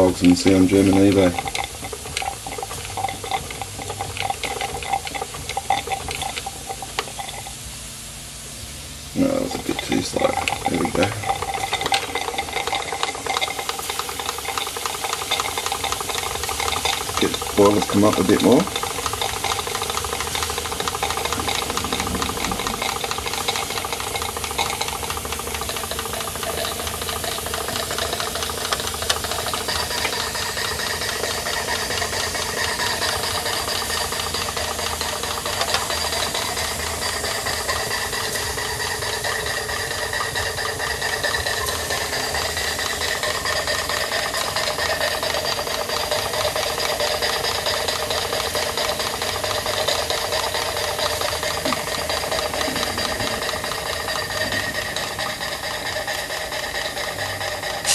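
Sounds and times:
model steam engine chuffing: 0.0 - 57.9.

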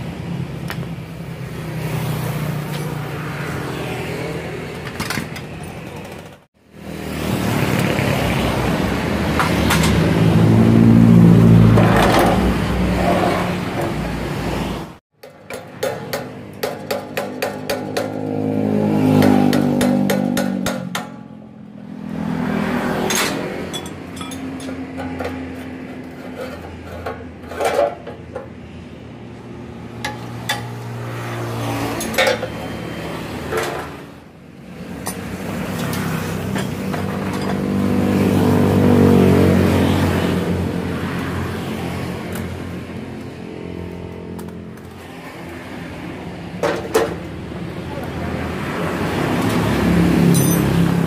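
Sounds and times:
passing motor vehicles humming: 0.0 - 51.0
hand tools clinking on metal: 23.1 - 28.5, 50.3 - 50.9.

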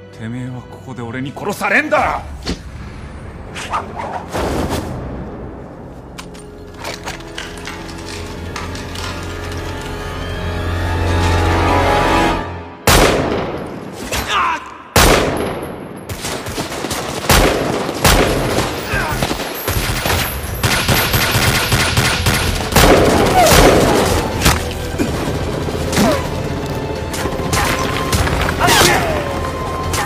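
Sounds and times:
pistol shots: 15.0 - 24.2.

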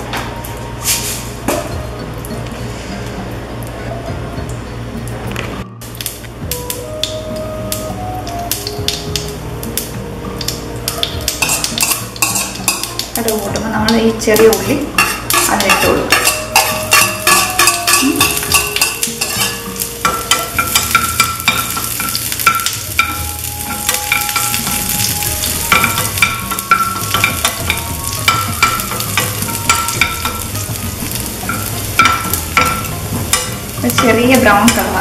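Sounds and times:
onions sizzling in oil: 5.8 - 35.0
spoon scraping a pan: 11.3 - 13.0, 14.4 - 35.0.

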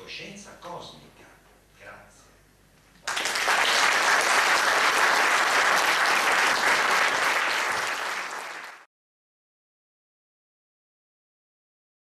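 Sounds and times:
roomful of people applauding: 3.0 - 8.9.

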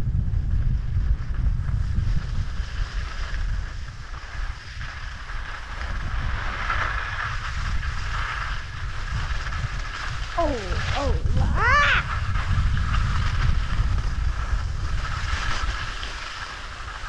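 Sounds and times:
wind buffeting microphone: 0.0 - 17.0
skis hissing on snow: 14.3 - 17.0.

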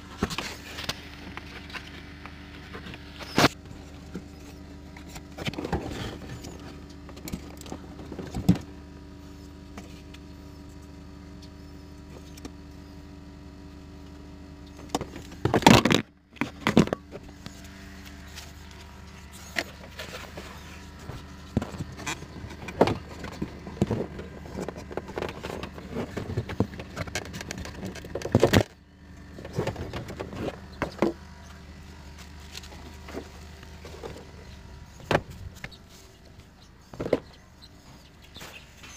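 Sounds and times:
steady low hum: 0.0 - 38.9
hands handling plastic parts: 14.8 - 31.2.

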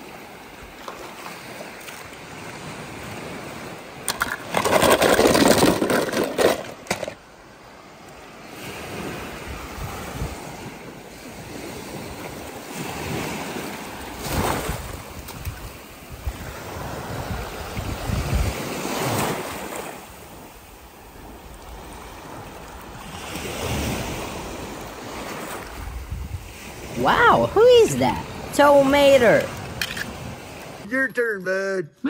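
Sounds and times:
ocean surf breaking: 0.0 - 30.9
wind buffeting microphone: 8.7 - 30.8.

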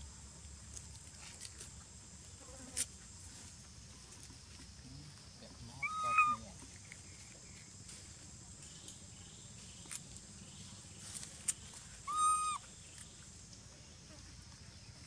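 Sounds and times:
macaque coo call: 5.8 - 6.4, 12.1 - 12.7.

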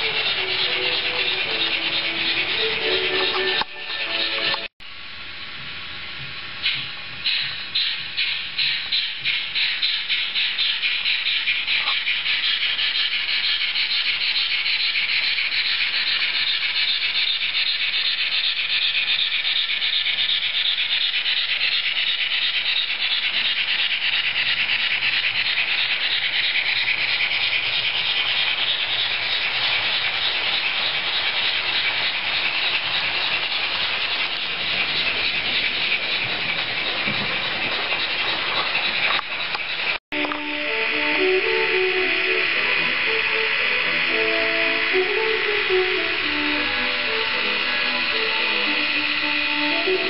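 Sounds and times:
model steam locomotive chuffs: 0.0 - 50.0.

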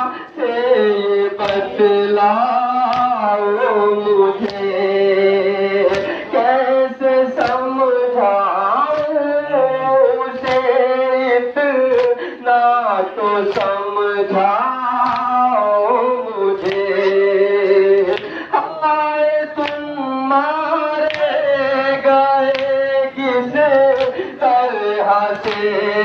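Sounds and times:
person singing a lament: 0.0 - 26.0
hands slapping chests: 1.4 - 1.8, 2.8 - 3.2, 4.4 - 4.7, 5.8 - 6.3, 7.4 - 7.8, 8.8 - 9.3, 10.3 - 10.8, 11.8 - 12.2, 13.4 - 13.9, 15.0 - 15.5, 16.6 - 17.2, 18.0 - 18.4, 19.6 - 20.0, 21.0 - 21.4, 22.4 - 24.4, 25.3 - 25.9.

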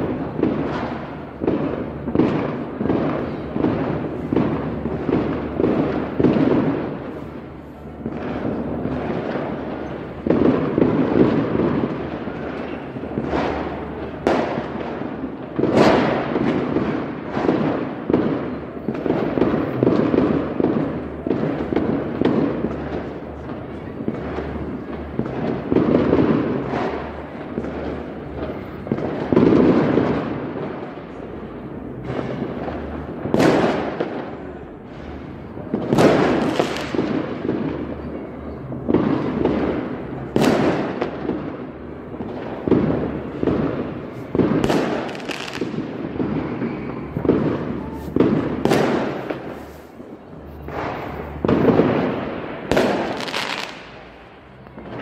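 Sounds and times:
distant fireworks booming: 0.0 - 55.0
sharp fireworks cracks: 0.0 - 55.0.

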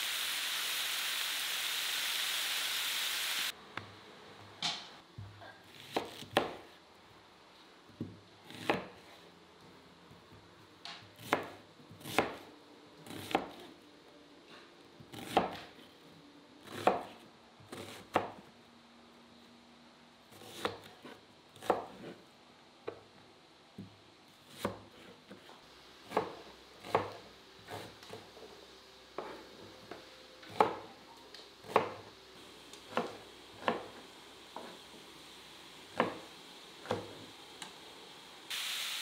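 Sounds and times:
knife chopping on cutting board: 5.8 - 6.6, 8.5 - 9.0, 13.1 - 13.7, 15.1 - 15.7, 20.4 - 22.2, 24.5 - 25.5, 26.1 - 28.3, 29.2 - 29.4, 30.5 - 30.9, 31.6 - 32.1, 32.9 - 34.0, 35.9 - 36.2.

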